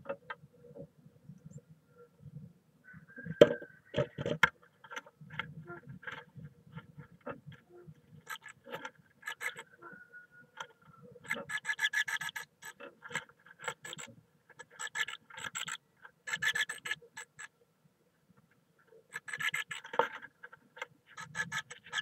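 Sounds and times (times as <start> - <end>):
bird scratching in nest moss: 4.8 - 9.8, 11.2 - 17.5, 19.1 - 22.0.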